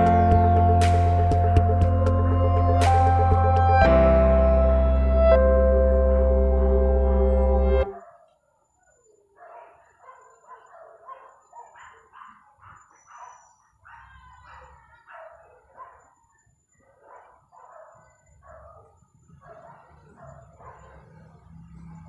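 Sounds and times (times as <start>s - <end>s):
faint dog barking: 7.9s - 22.0s.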